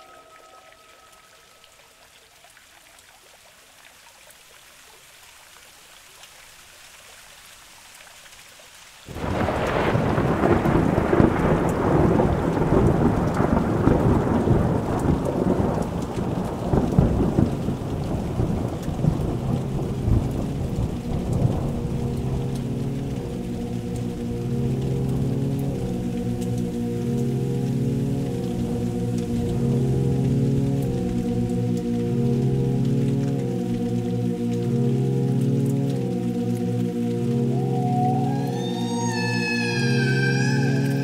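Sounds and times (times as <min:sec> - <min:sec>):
heavy rain: 0:00.0 - 0:41.0
deep thunder rumble: 0:09.1 - 0:35.1.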